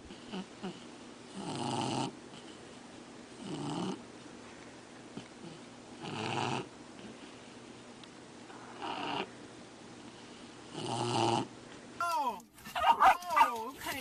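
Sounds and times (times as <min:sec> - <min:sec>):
dog snoring: 0:00.0 - 0:02.6, 0:03.4 - 0:04.0, 0:05.2 - 0:07.3, 0:08.5 - 0:09.4, 0:10.6 - 0:11.5.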